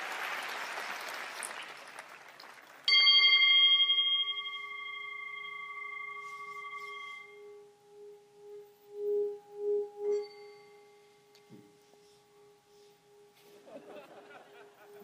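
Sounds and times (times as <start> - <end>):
singing bowl ringing: 2.9 - 13.5.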